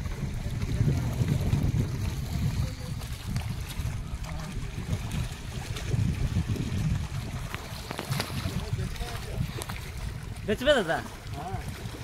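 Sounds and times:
water lapping at rocky shore: 0:00.0 - 0:12.0.

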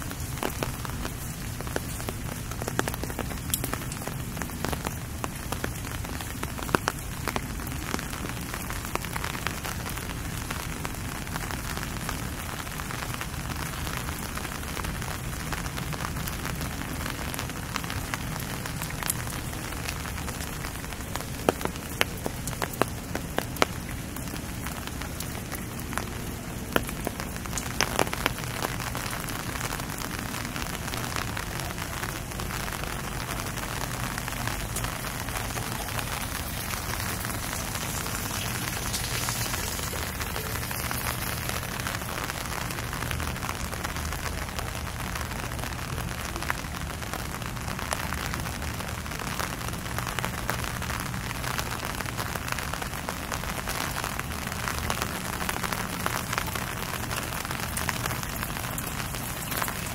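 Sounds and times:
rain on street: 0:00.0 - 0:59.9.

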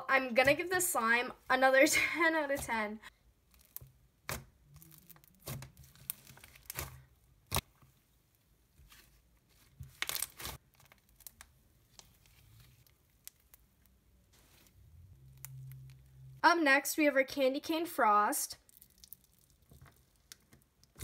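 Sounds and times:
slime stretching and crackling: 0:02.4 - 0:07.8, 0:08.7 - 0:16.4, 0:18.5 - 0:21.0.

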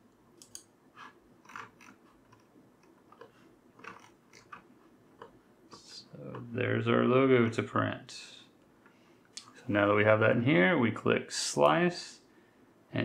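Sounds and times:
low room hiss: 0:00.0 - 0:13.0
computer mouse clicks: 0:00.4 - 0:04.6.

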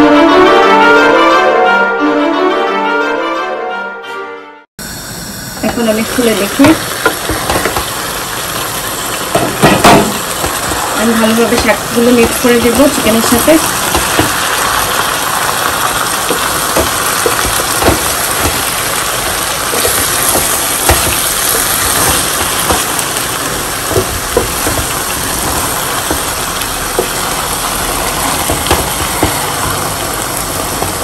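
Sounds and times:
food sizzling in a pan: 0:04.8 - 0:31.0
spatula knocking against pan: 0:16.3 - 0:18.7, 0:19.7 - 0:23.0, 0:23.9 - 0:27.3, 0:28.3 - 0:29.8.

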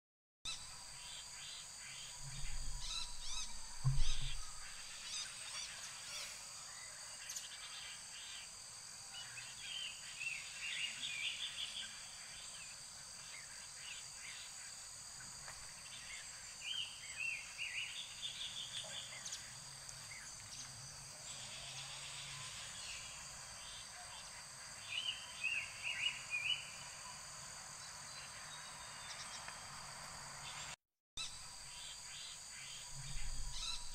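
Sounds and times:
songbird warbling: 0:00.5 - 0:06.2, 0:32.7 - 0:33.9
high-pitched insect drone: 0:00.5 - 0:12.8, 0:18.8 - 0:33.9
loud low thump and rumble: 0:02.2 - 0:04.9.

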